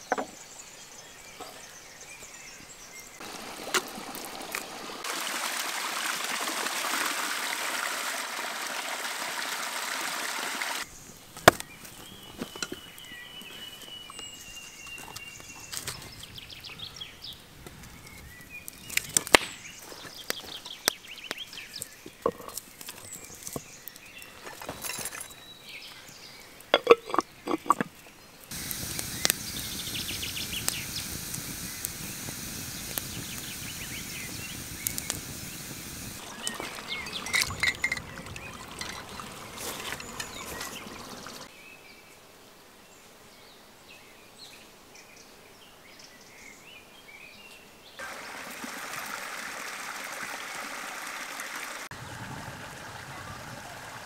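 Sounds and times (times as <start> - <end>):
steady rushing hiss: 2.4 - 5.7, 28.4 - 41.6
wood fire crackling: 3.2 - 5.2, 17.3 - 21.0, 28.4 - 41.5
hatchet striking firewood: 11.4 - 11.7.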